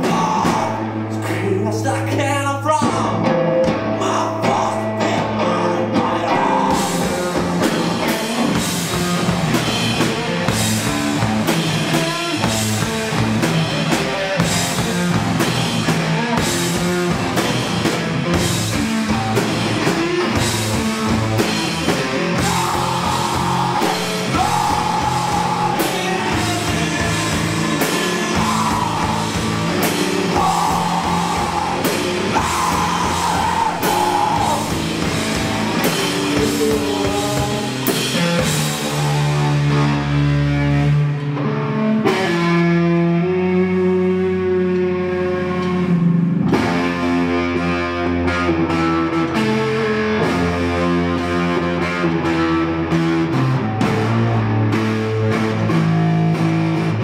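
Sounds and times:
drum kit with cymbal hits: 0.0s - 2.2s, 2.8s - 40.7s
electric guitar: 0.0s - 57.0s
high held notes: 18.8s - 40.4s.

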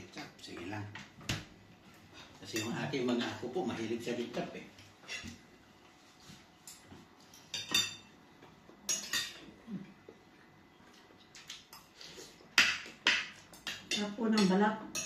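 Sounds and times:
cutlery clinking on plates: 5.0s - 5.4s, 6.6s - 8.2s, 8.9s - 9.5s, 12.5s - 15.0s.

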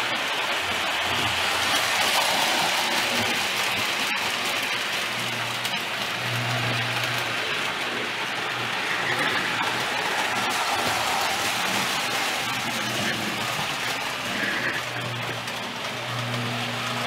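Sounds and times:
toy train wheels rattling on rails: 0.0s - 17.0s
low motor hum: 5.0s - 17.0s.

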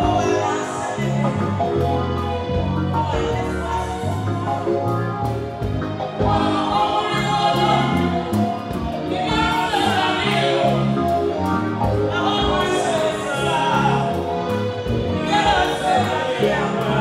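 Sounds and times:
backing singers: 0.0s - 17.0s
band with bass and drums: 0.0s - 17.0s
woman singing into microphone: 12.1s - 14.0s.

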